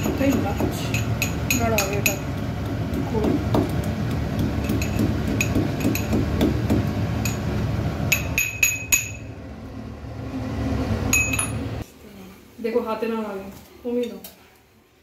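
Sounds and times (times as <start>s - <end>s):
spoon clinking on steel bowl: 0.0s - 2.4s, 4.6s - 6.3s
low rushing noise: 9.3s - 11.8s.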